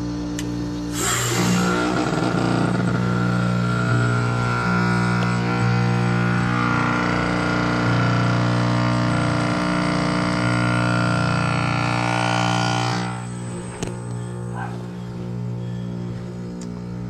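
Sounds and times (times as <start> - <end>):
compressor humming: 0.0 - 17.0
outdoor fan rushing: 0.0 - 17.0.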